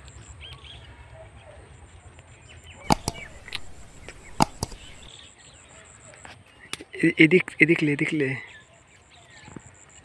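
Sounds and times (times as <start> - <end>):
faint bird chirps: 2.7 - 5.8
sharp knocks: 2.9 - 5.1.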